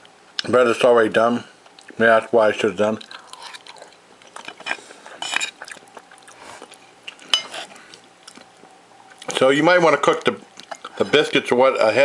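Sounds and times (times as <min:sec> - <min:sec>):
person chewing food: 0:01.6 - 0:02.0, 0:02.9 - 0:09.4, 0:10.2 - 0:11.0.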